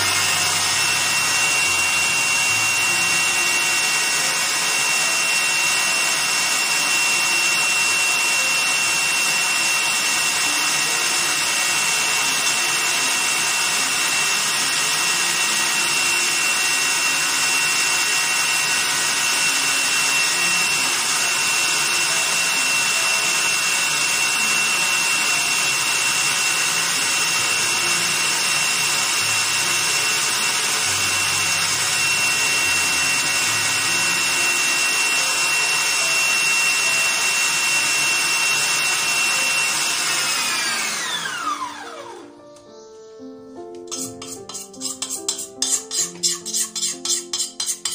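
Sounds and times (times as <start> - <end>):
stand mixer whirring: 0.0 - 42.3.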